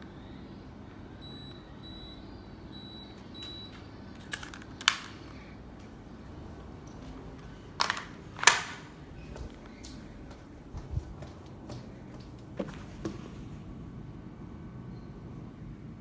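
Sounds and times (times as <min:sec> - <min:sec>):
air conditioner short high beeps: 0:00.0 - 0:04.2, 0:14.8 - 0:15.6.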